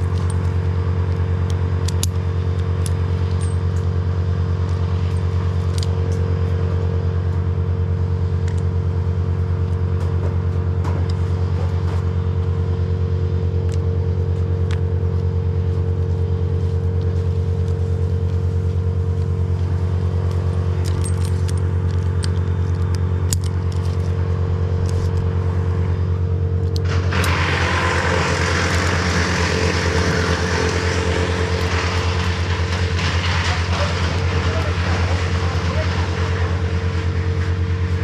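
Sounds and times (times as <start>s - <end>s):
engine running steadily: 0.0s - 38.0s
loud rushing hiss: 26.8s - 32.6s.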